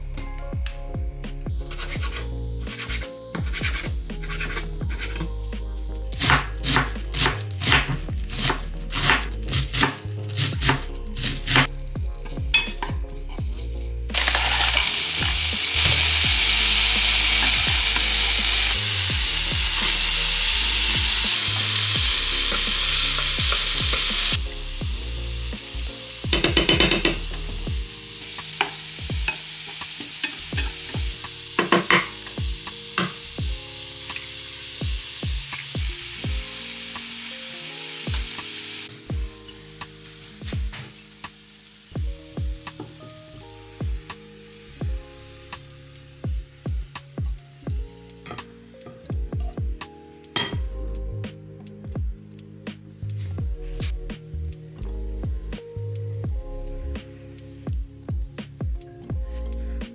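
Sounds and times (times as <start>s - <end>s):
background music: 0.0s - 59.9s
cabbage sizzling in frying pan: 14.1s - 46.6s.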